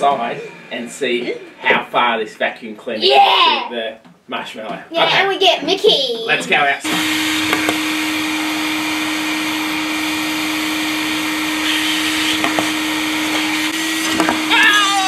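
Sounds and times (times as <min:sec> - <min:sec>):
vacuum cleaner running: 0:06.5 - 0:15.0
person exclaiming: 0:14.5 - 0:15.0.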